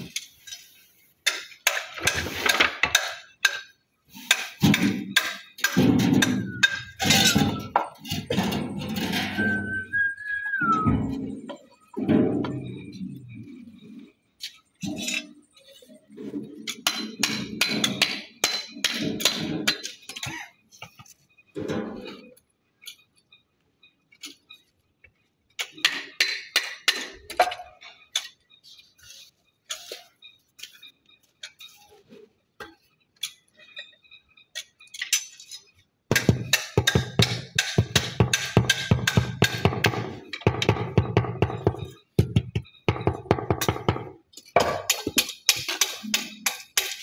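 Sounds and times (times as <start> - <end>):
trowel clinking on stones: 32.6 - 35.8.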